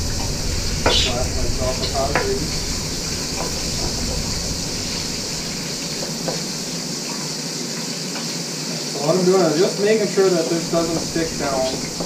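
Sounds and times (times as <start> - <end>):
meat sizzling in oil: 0.0 - 12.0
wooden spoon tapping pot: 0.8 - 2.6, 5.9 - 6.6, 10.7 - 12.0.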